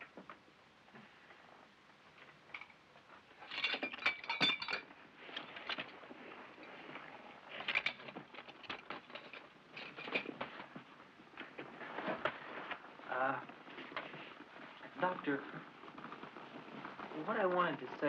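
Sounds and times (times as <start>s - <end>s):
small hard objects clinking: 3.4s - 5.9s.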